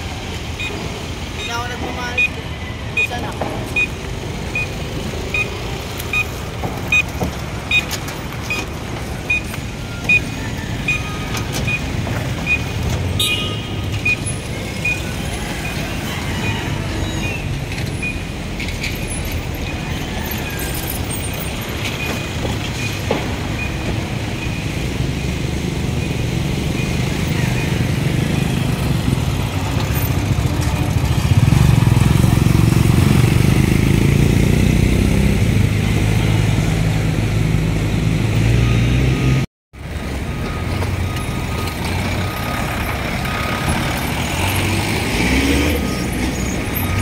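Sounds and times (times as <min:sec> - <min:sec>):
road traffic noise: 0:00.0 - 0:47.0
short high beeps: 0:00.6 - 0:07.1.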